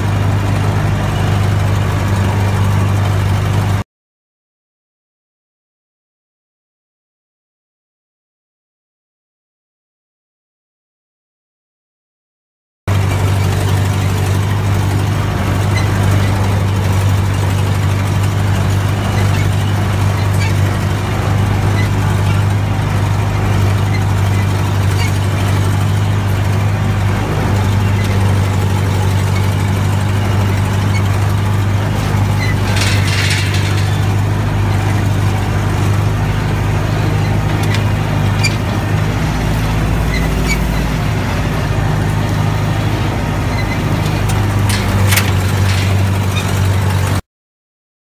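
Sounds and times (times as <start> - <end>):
vehicle engine running: 0.0 - 3.8, 12.9 - 47.2
harrow chains rattling: 12.9 - 41.0, 44.0 - 47.2.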